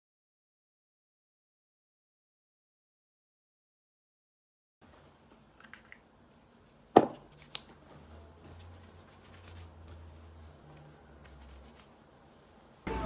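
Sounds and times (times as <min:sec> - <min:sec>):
hands rubbing damp hair: 0:08.4 - 0:12.9.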